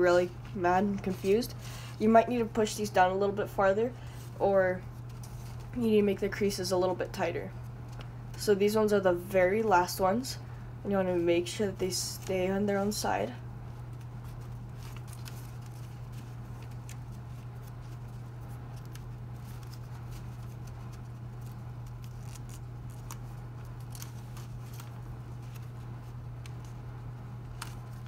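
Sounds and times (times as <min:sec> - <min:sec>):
steady low hum: 0:00.0 - 0:28.0
paper crinkling: 0:13.7 - 0:28.0.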